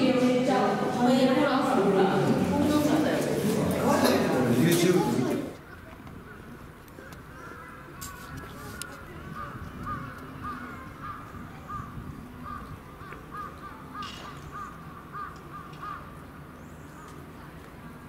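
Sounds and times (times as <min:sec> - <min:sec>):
crow calling: 0:05.7 - 0:17.2.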